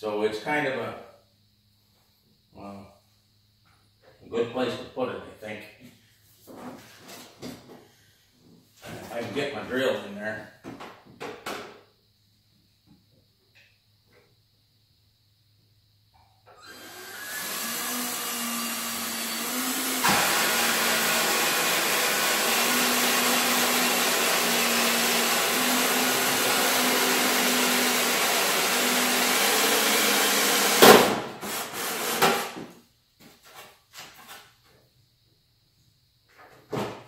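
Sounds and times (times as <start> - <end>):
drill hole saw whine and grinding: 16.6 - 30.9.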